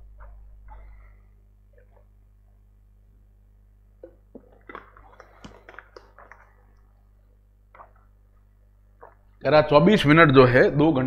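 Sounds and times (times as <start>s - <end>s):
steady low hum: 0.0s - 11.0s
small smacking noises: 4.0s - 7.0s, 7.7s - 9.4s.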